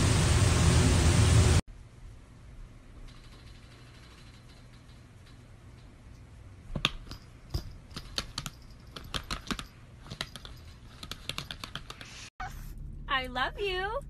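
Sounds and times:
laptop keyboard typing: 3.1 - 5.4, 7.8 - 12.2.

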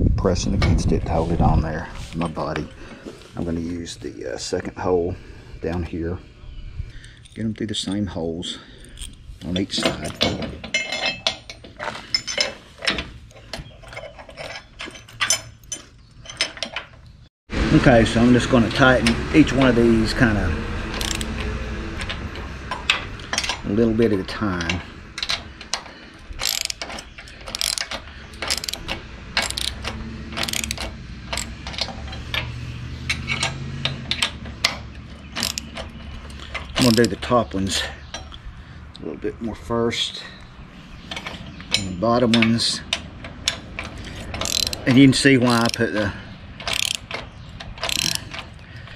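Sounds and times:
metal bolts clinking: 7.0 - 17.2, 20.9 - 38.4, 41.0 - 48.9
ratchet wrench clicking: 20.9 - 21.4, 25.2 - 32.5, 33.1 - 37.2, 42.9 - 46.0, 46.6 - 48.6.

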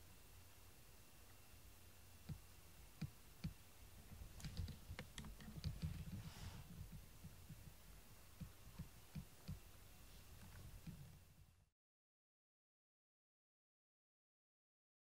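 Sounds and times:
soft rustle: 4.0 - 8.9, 9.8 - 11.2.

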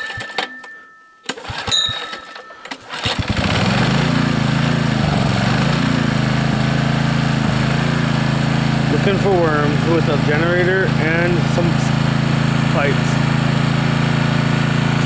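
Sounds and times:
generator engine running: 0.0 - 15.0
recoil starter pull whirring: 0.0 - 15.0.

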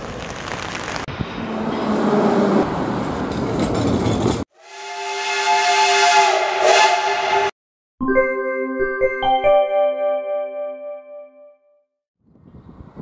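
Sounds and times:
steam locomotive whistle: 4.6 - 7.5.

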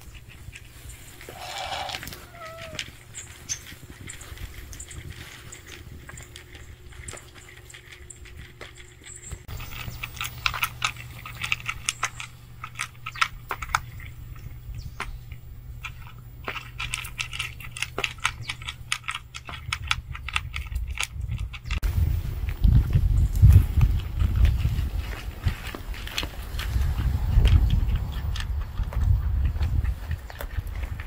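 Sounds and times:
cat crunching dry kibble: 0.0 - 31.0
low steady rumble: 0.0 - 31.0.

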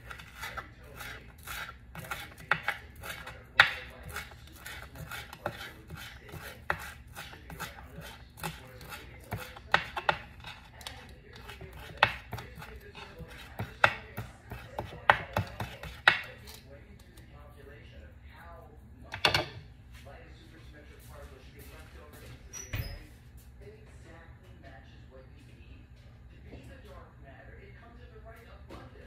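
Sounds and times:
knife chopping on wooden board: 0.0 - 16.6.

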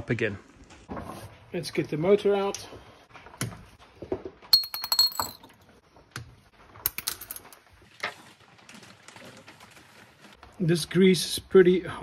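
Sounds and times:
metal parts and tools clinking: 4.5 - 5.6, 6.9 - 7.6.

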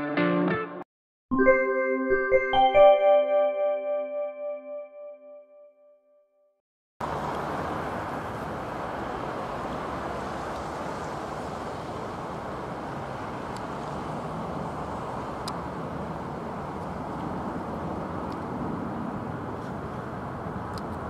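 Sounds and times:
jet engines roaring overhead: 7.0 - 21.0.

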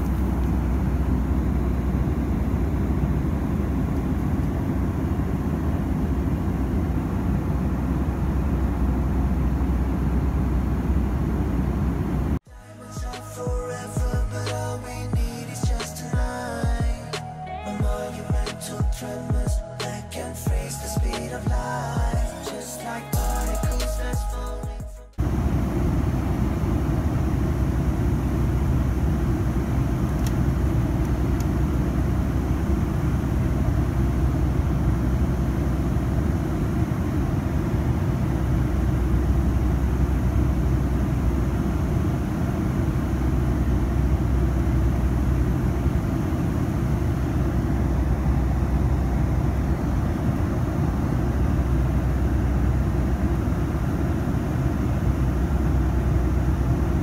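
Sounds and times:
airliner cabin engine drone: 0.0 - 57.0.

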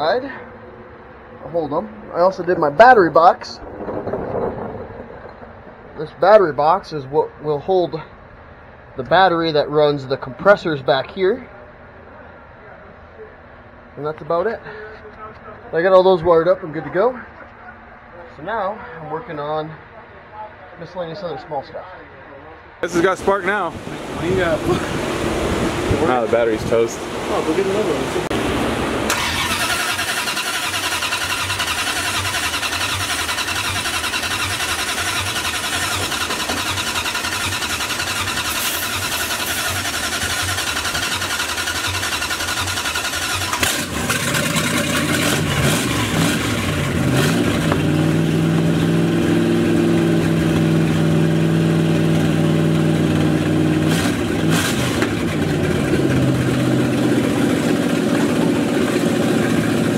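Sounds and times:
engine running and revving: 27.2 - 59.9
engine cranking on starter: 29.1 - 47.7.

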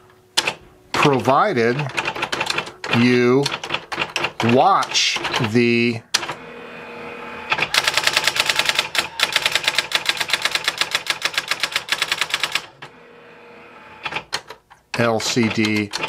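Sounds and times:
typewriter motor hum: 0.4 - 16.0
typewriter daisywheel strikes: 7.5 - 12.7.

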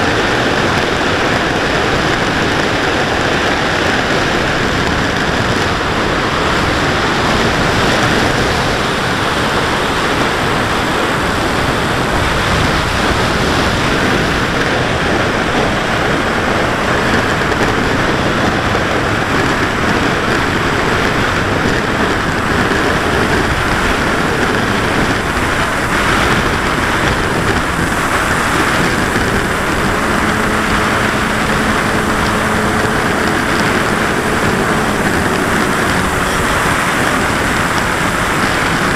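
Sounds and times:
wind and propeller rush: 0.0 - 38.9
electric motor hum: 23.1 - 38.9.

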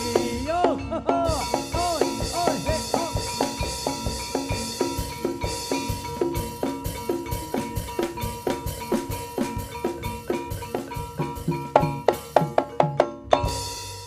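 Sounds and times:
sustained high tone: 0.0 - 7.9
drums beating steady rhythm: 0.0 - 14.0.

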